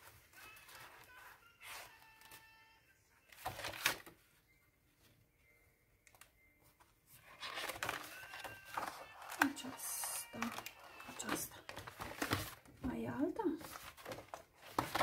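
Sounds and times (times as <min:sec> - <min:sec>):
paper pages rustling and turning: 0:00.0 - 0:02.6, 0:03.2 - 0:04.3, 0:06.6 - 0:12.9, 0:13.5 - 0:15.0.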